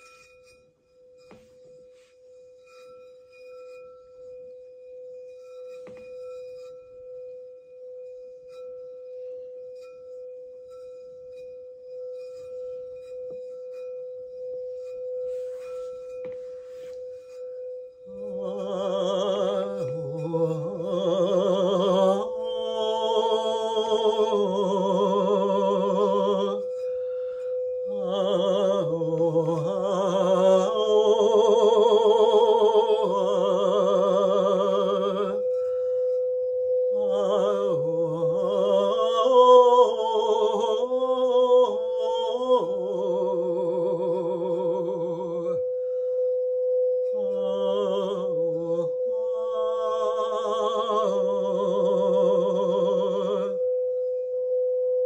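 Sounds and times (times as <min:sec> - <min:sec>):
singing bowl ringing: 0:00.0 - 0:55.0
wordless singing with vibrato: 0:18.1 - 0:35.6, 0:36.9 - 0:45.8, 0:47.2 - 0:53.7.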